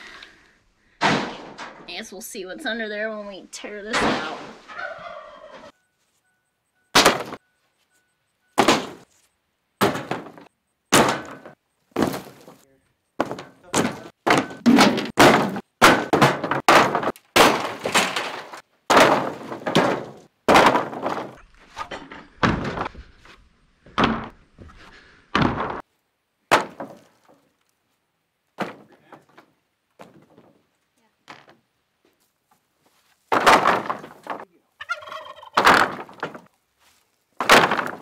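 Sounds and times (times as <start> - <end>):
boards and metal sheets crashing: 0.9 - 1.9, 7.0 - 7.4, 8.6 - 9.1, 9.8 - 12.6, 13.2 - 23.1, 25.4 - 25.8, 26.5 - 27.3, 33.3 - 34.5, 35.6 - 36.5, 37.4 - 38.0.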